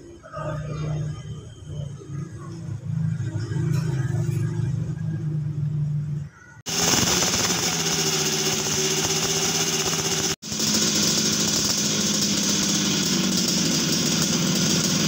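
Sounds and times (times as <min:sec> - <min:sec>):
motorcycle engine idling: 0:06.7 - 0:15.0.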